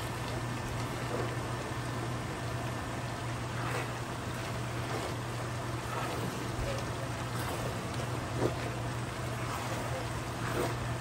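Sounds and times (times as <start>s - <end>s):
constant low hum: 0.0s - 11.0s.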